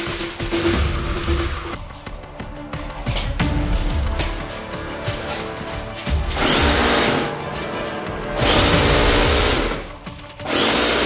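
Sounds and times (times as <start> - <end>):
airsoft rifle firing bursts: 8.4 - 9.8, 10.5 - 11.0.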